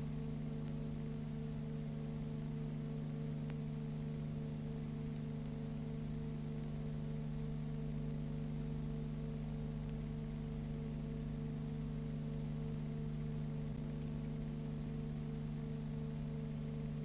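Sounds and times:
constant hiss: 0:00.0 - 0:17.0
electrical hum: 0:00.0 - 0:17.0
faint ticks: 0:00.1 - 0:16.6.

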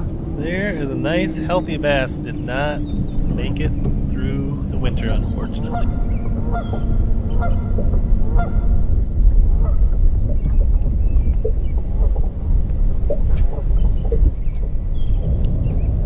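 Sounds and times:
wind rumble on microphone: 0:00.0 - 0:16.0
geese honking: 0:04.8 - 0:08.8.

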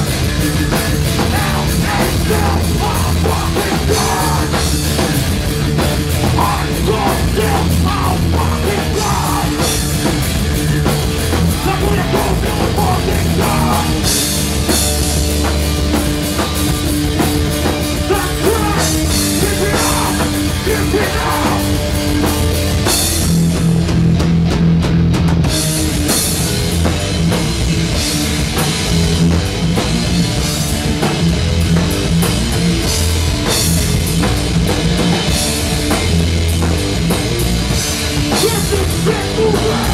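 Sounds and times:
punk band playing live: 0:00.0 - 0:39.9
person singing into microphone: 0:06.4 - 0:09.6, 0:18.1 - 0:21.6.

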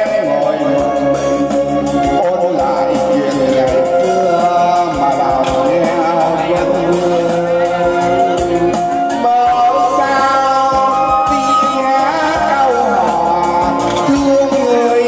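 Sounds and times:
instrumental accompaniment: 0:00.0 - 0:15.0
man singing into microphone: 0:00.0 - 0:15.0.

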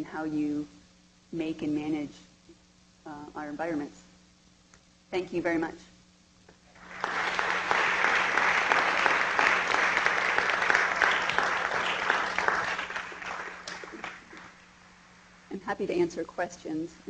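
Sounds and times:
audience applauding: 0:06.8 - 0:14.6.

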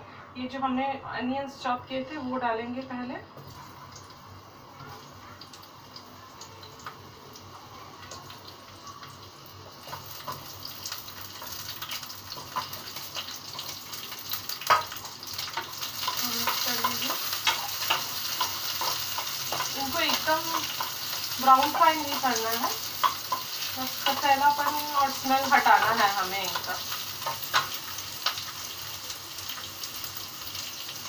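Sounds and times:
onions sizzling in hot oil: 0:01.4 - 0:31.0
utensils clicking against pan: 0:09.8 - 0:28.5.

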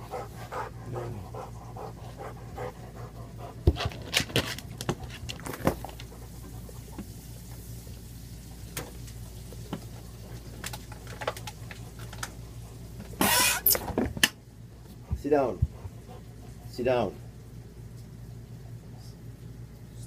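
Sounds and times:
dog panting: 0:00.0 - 0:07.0, 0:14.8 - 0:17.2.

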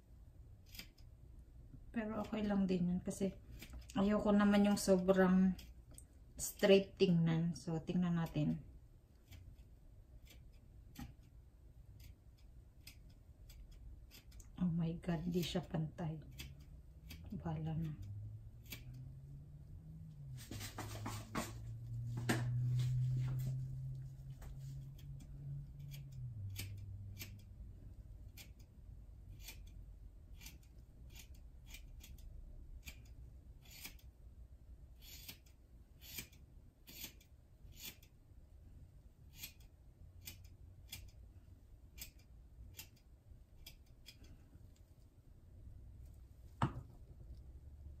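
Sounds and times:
scissors snipping hair: 0:11.9 - 0:19.0, 0:23.8 - 0:27.6, 0:28.2 - 0:34.2, 0:39.3 - 0:41.2, 0:41.9 - 0:44.4.

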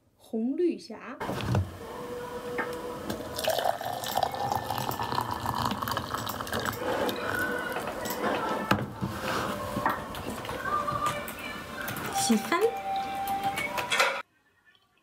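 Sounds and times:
water pouring into a jug: 0:03.3 - 0:07.8.

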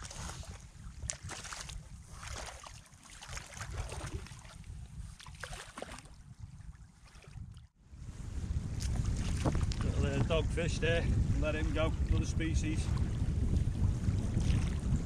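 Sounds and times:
boots sloshing through water: 0:00.0 - 0:06.2, 0:06.8 - 0:07.4
wind on microphone: 0:00.0 - 0:15.0
small splashes: 0:01.0 - 0:04.6, 0:05.2 - 0:06.2, 0:06.9 - 0:07.4.

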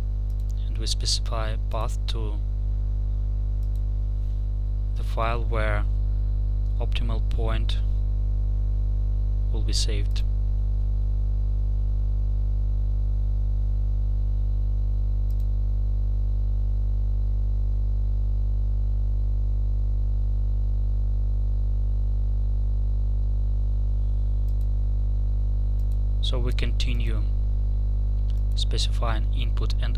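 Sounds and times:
electrical hum and buzz: 0:00.0 - 0:29.9
faint click: 0:15.2 - 0:15.5.

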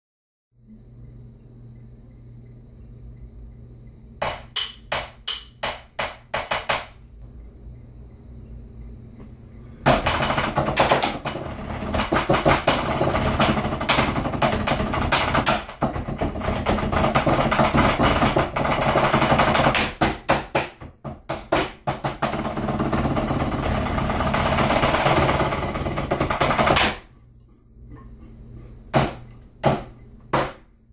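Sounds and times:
drumsticks on practice pads: 0:04.2 - 0:06.7.

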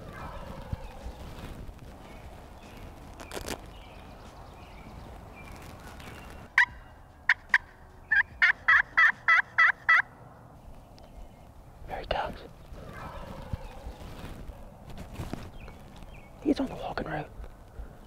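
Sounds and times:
handling rustle: 0:00.4 - 0:06.5, 0:12.2 - 0:16.6
turkey call yelping: 0:06.6 - 0:10.1.

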